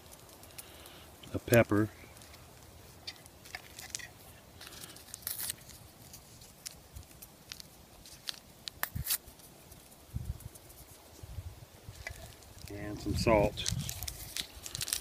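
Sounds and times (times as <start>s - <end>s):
paper packets tearing: 3.4s - 9.3s, 13.4s - 15.0s.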